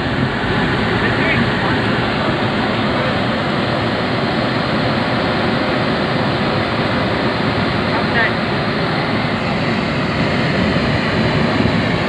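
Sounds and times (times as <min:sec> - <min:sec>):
electric locomotive rushing noise: 0:00.0 - 0:05.5.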